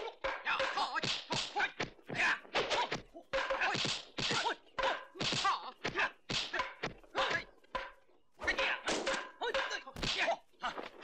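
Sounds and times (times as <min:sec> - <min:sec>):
punches landing: 0:00.0 - 0:11.0.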